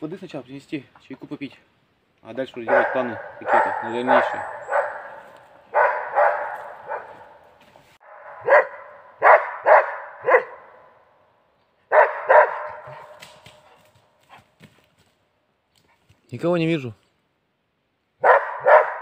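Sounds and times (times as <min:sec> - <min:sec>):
dog barking with echo: 0:02.6 - 0:07.4, 0:08.0 - 0:10.9, 0:11.9 - 0:13.2, 0:18.2 - 0:19.0.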